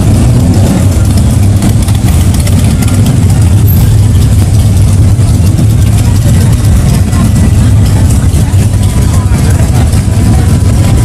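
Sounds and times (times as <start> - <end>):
motorcycles rolling past: 0.0 - 11.0.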